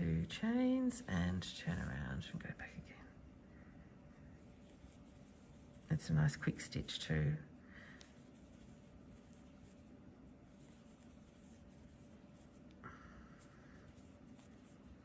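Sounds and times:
yarn rustling through stitches: 4.1s - 15.0s.

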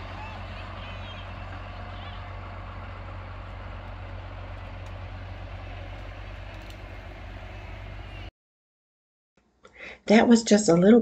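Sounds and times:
tractor diesel engine rumbling: 0.0s - 8.3s.

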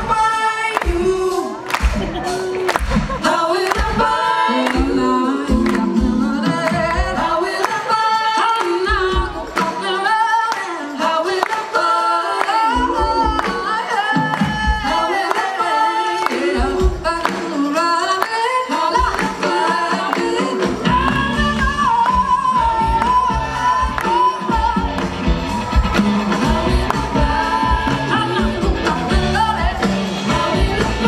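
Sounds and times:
live band with drums bass guitar: 0.0s - 4.2s, 18.9s - 31.0s
woman singing: 0.0s - 25.2s, 26.3s - 31.0s.

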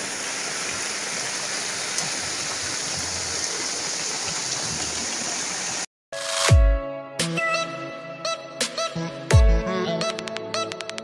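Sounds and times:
heavy rain falling: 0.0s - 5.8s.

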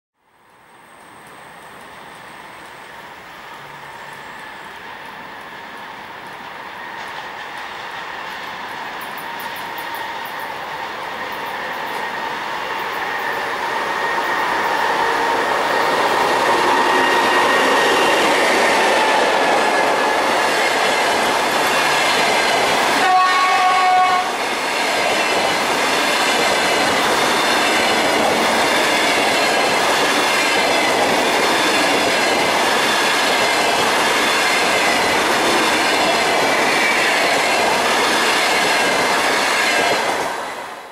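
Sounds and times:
electric locomotive passing: 0.3s - 40.9s
train wheels on rails: 0.4s - 40.9s
train horn: 16.4s - 18.4s, 22.8s - 24.4s.

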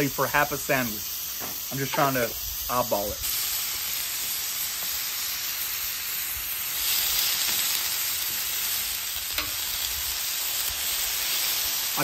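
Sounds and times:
meat sizzling on a griddle: 0.0s - 12.0s.

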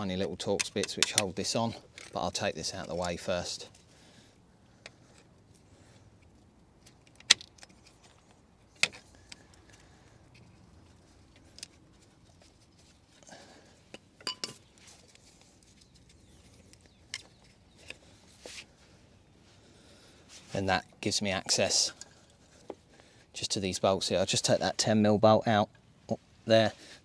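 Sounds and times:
metallic clicks from hand tools: 0.6s - 1.4s.

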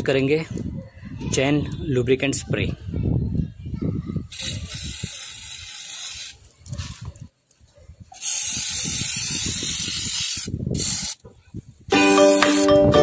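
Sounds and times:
aerosol spray hissing: 4.4s - 6.4s, 8.2s - 11.2s.

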